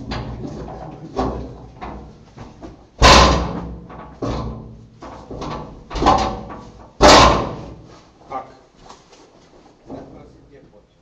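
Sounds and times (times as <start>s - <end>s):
sharp knocks echoing in a cave: 5.3s - 7.8s.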